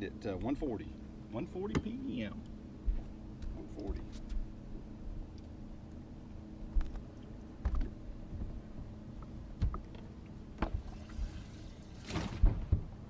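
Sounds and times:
low steady hum: 0:00.0 - 0:13.0
knocks and clicks on boat deck: 0:01.6 - 0:04.0, 0:07.6 - 0:08.6, 0:09.2 - 0:10.8.

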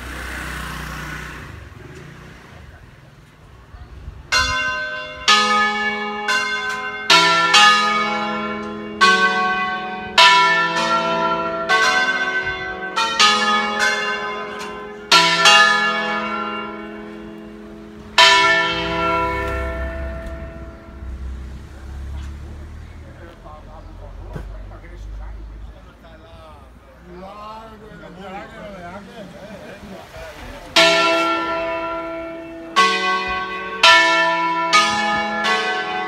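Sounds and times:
church bells ringing a tune: 0:04.3 - 0:21.6, 0:30.6 - 0:36.0.

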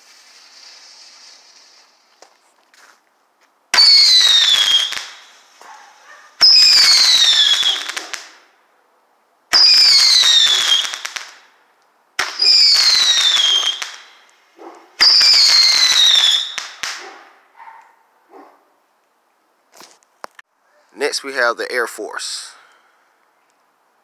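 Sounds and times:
firework crackling: 0:00.0 - 0:02.6, 0:03.7 - 0:08.5, 0:09.5 - 0:11.6, 0:12.2 - 0:17.1
roman candle whistling shots: 0:03.8 - 0:05.6, 0:06.4 - 0:08.4, 0:09.5 - 0:11.3, 0:12.2 - 0:14.3, 0:15.0 - 0:17.2.

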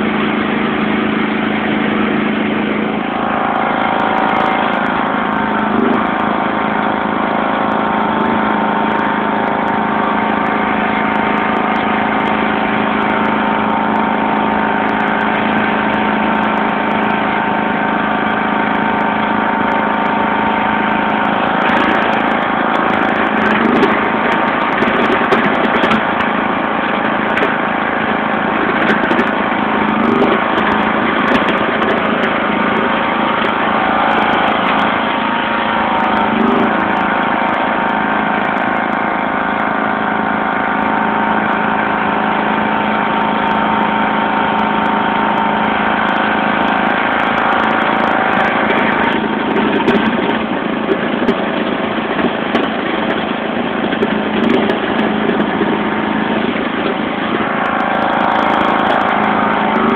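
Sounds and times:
lawn tractor engine running: 0:00.0 - 0:59.9.

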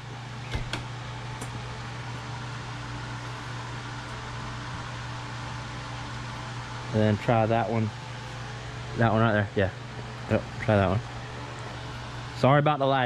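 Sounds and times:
low mechanical hum with hiss: 0:00.0 - 0:13.0.

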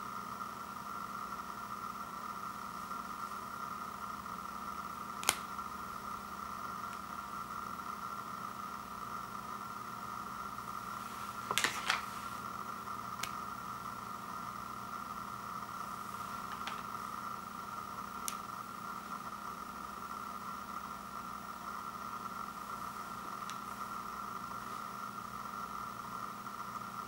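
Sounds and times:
faint background hum: 0:00.0 - 0:27.0
chocolate bar snapping: 0:05.2 - 0:05.5.

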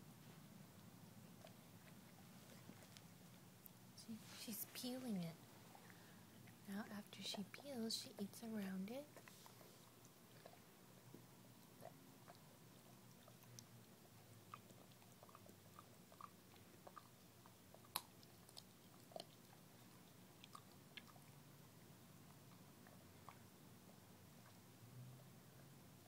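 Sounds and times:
dog chewing wetly: 0:09.1 - 0:25.6.

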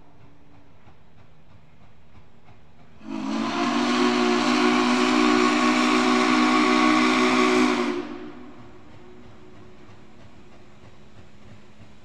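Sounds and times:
rush of steam: 0:00.0 - 0:12.0
steam locomotive whistle blast: 0:03.0 - 0:08.7.

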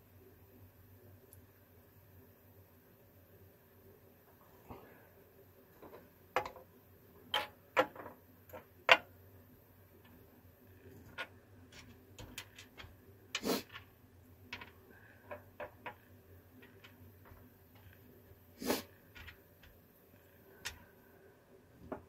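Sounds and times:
plastic parts clicking and tapping: 0:05.8 - 0:06.7, 0:07.3 - 0:09.1, 0:11.0 - 0:18.1, 0:19.1 - 0:20.9.

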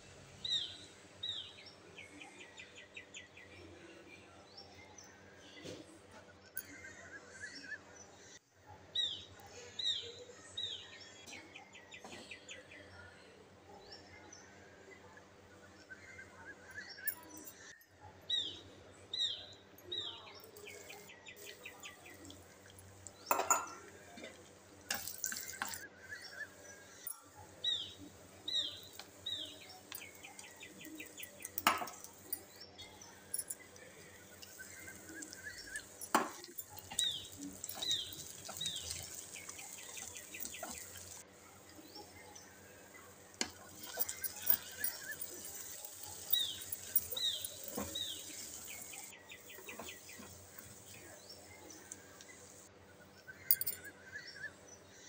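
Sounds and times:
vegetables sizzling: 0:34.4 - 0:41.2, 0:43.4 - 0:51.0.

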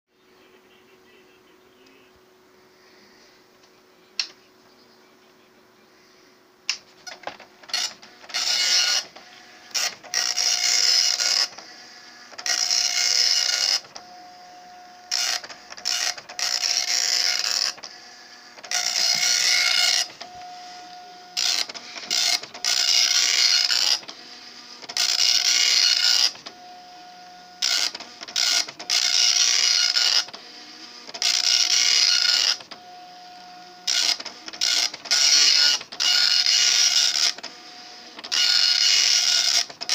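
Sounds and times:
print head rasping: 0:06.9 - 0:39.9
printer clicks: 0:33.9 - 0:37.6, 0:38.2 - 0:39.9.

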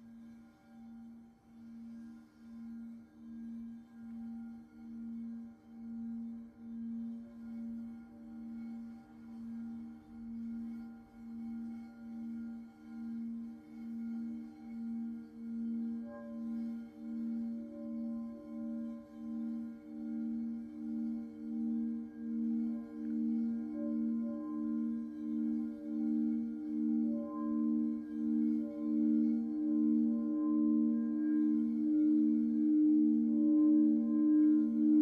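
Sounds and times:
singing bowls humming: 0:00.0 - 0:35.0.

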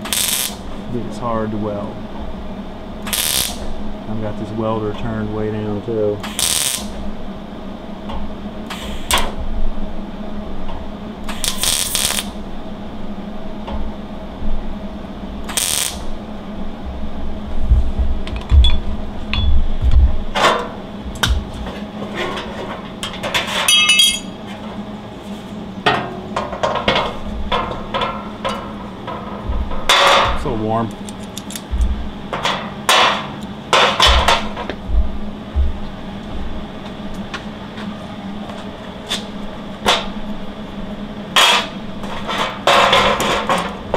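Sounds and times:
welder crackling bursts: 0:00.0 - 0:00.8, 0:03.0 - 0:03.8, 0:06.2 - 0:07.0, 0:08.7 - 0:09.3, 0:11.2 - 0:12.4, 0:15.4 - 0:16.2
steady hum: 0:00.0 - 0:43.9
knocks and metallic clinks: 0:18.4 - 0:19.6, 0:23.0 - 0:24.4.

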